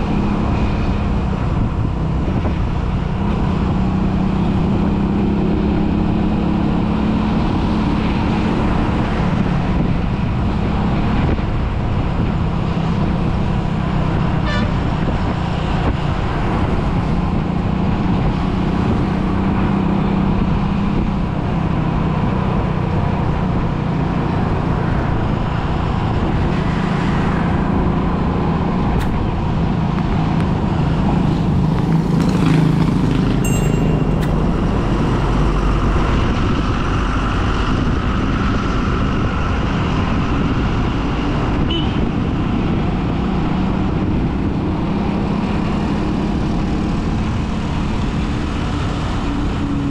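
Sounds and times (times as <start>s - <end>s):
road traffic: 0.0s - 49.9s
short high tone: 33.4s - 35.3s.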